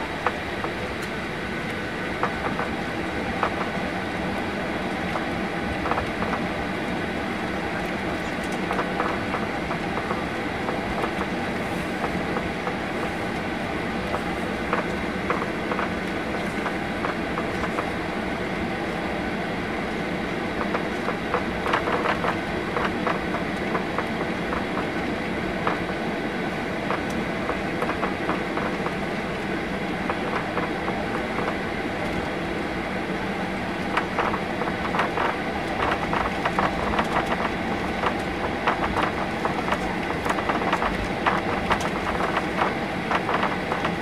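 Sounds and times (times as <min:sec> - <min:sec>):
jet engines idling whine: 0:00.0 - 0:44.0.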